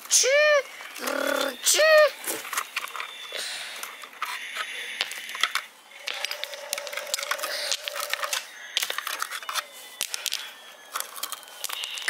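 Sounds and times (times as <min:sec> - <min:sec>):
small stones clicking on wood: 0:04.2 - 0:12.0.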